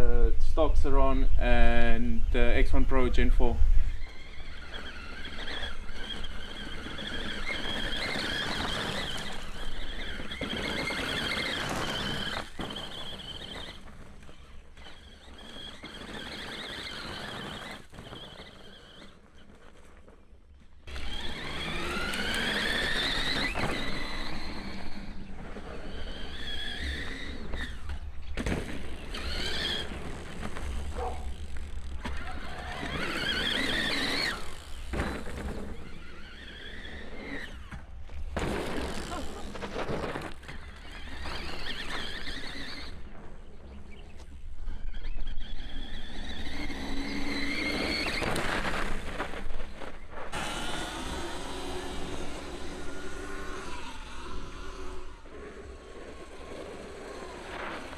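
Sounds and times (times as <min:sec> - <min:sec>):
riding noise rumble: 0:00.0 - 0:57.9
electric motor whining: 0:01.3 - 0:57.9.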